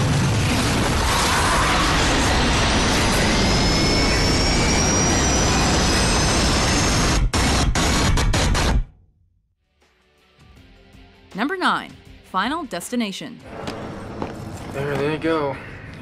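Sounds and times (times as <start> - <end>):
rush of air and jet engine: 0.0 - 8.1
faint high rising whine: 1.4 - 7.2.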